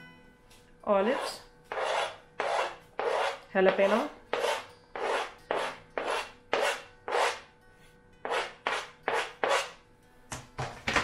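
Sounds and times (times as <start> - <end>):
metal spoon scraping chopping board: 1.0 - 7.4, 8.2 - 9.8.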